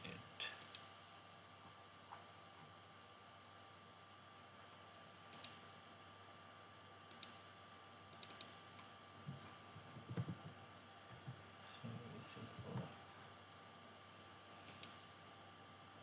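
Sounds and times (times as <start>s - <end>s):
computer mouse clicking: 0.6s - 0.9s, 5.3s - 5.6s, 7.1s - 7.4s, 8.1s - 8.6s, 14.6s - 15.0s.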